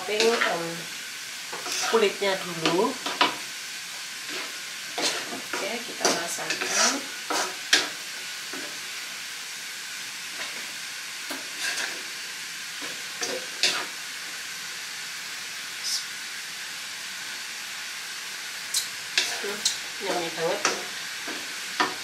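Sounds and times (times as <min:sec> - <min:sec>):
filling sizzling in a wok: 0:00.0 - 0:22.0
wooden spatula scraping: 0:01.5 - 0:03.3, 0:04.2 - 0:08.8, 0:11.3 - 0:12.1.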